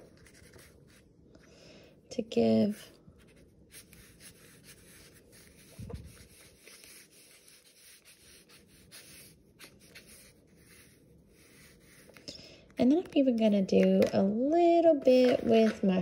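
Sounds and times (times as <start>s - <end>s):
marker scratching on paper: 2.6s - 12.2s.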